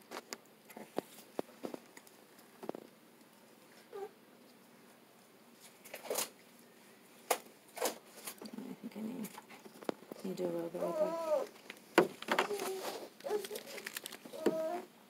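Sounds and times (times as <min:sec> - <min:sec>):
newborn baby whimpering: 0:10.8 - 0:11.6, 0:12.4 - 0:14.9.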